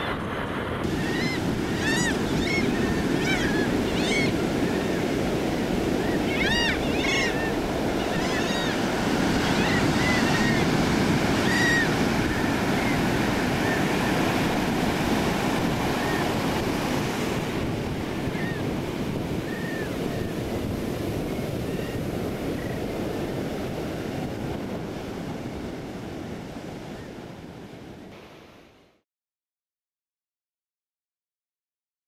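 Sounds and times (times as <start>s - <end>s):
wind buffeting microphone: 0.0s - 28.1s
surf breaking on a beach: 0.0s - 28.8s.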